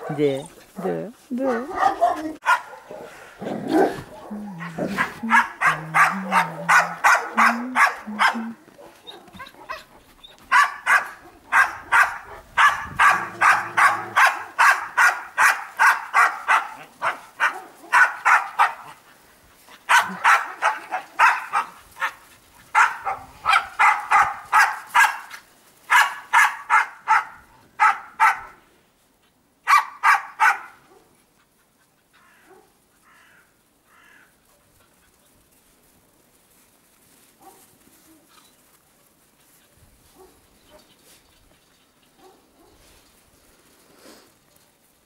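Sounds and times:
dog barking rapidly: 1.5s - 4.2s, 4.8s - 9.9s, 10.5s - 19.0s, 19.9s - 25.3s, 25.9s - 28.6s, 29.7s - 30.8s.

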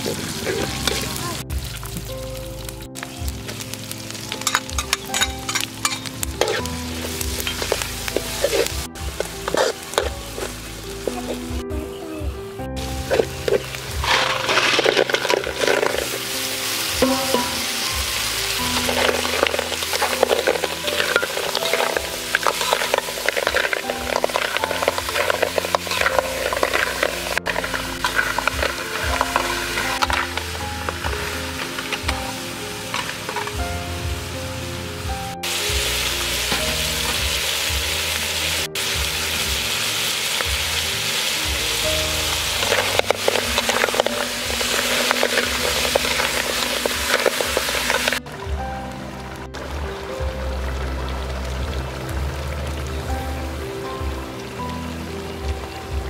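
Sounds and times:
food sizzling in a wok: 0.0s - 12.1s, 12.8s - 56.0s
background music: 0.0s - 56.0s
frying hiss: 0.0s - 56.0s
metal ladle stirring: 4.3s - 11.4s, 12.8s - 33.6s, 42.3s - 48.2s
shells clicking against pan: 4.4s - 6.7s.

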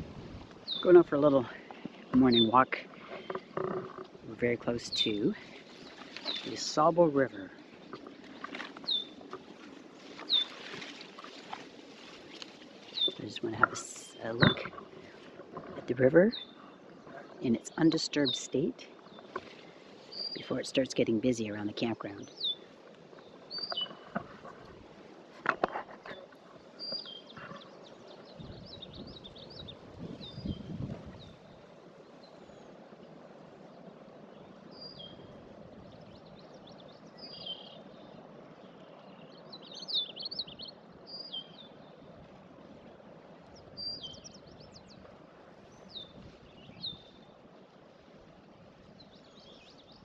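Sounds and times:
songbirds singing: 0.0s - 50.0s.

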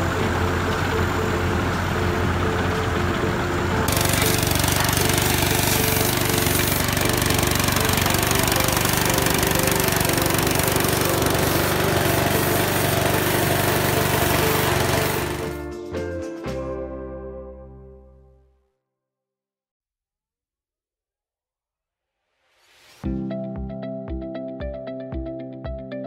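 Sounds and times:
pressure washer motor drone: 0.0s - 15.6s
high-pressure spray on sheet metal: 3.9s - 15.6s.

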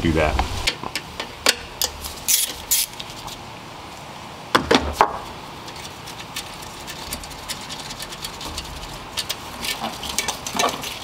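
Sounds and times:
scraping rustles: 5.6s - 11.0s.

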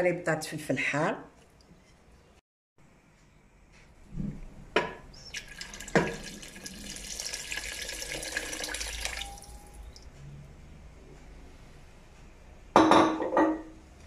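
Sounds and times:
water pouring into a pot: 5.3s - 10.0s.

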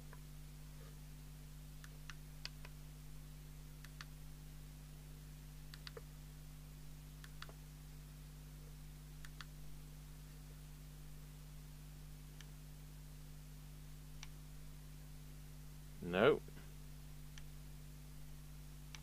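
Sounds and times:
low mains hum: 0.0s - 19.0s.

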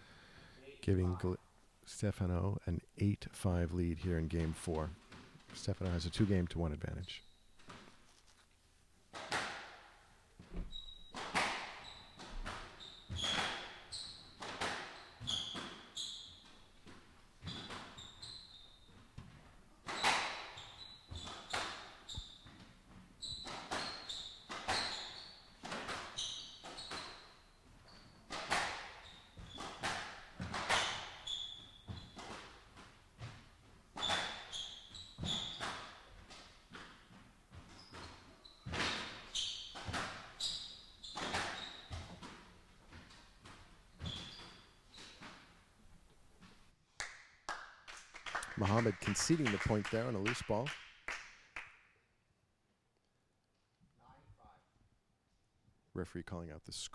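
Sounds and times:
shoes squeaking on hardwood floor: 4.0s - 9.5s, 10.3s - 46.7s
squash ball hits echoing: 9.1s - 9.9s, 11.1s - 13.8s, 19.2s - 22.6s, 28.3s - 31.2s.

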